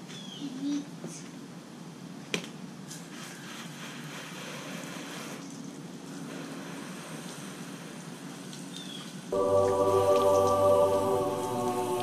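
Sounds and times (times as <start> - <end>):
water spraying from hose: 3.1 - 8.8.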